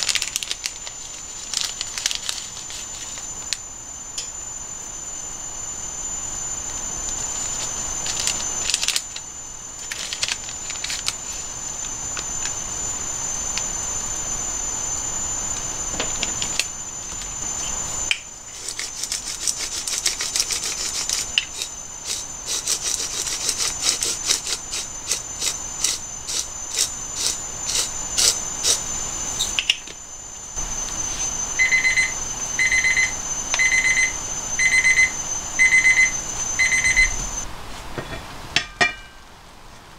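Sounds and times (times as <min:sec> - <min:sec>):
steady high-pitched tone: 0:00.0 - 0:39.4
electronic alarm beeping: 0:20.7 - 0:37.4.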